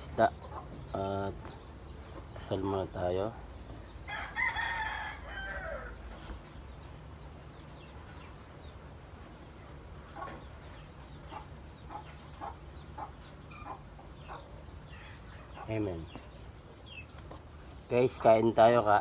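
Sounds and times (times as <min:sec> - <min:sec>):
chickens clucking: 0:00.0 - 0:19.0
rooster crowing: 0:04.1 - 0:06.0.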